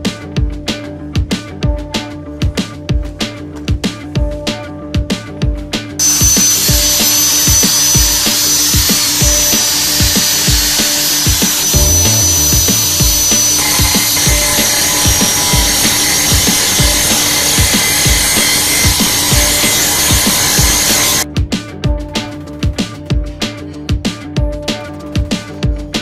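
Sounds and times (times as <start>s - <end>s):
background music with steady beat: 0.0s - 26.0s
angle grinder grinding metal: 6.0s - 21.3s.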